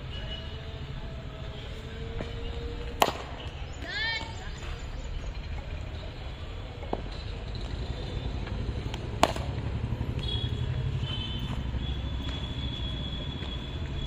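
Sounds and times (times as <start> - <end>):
cricket ball striking a bat: 2.2 - 3.6, 8.8 - 10.3.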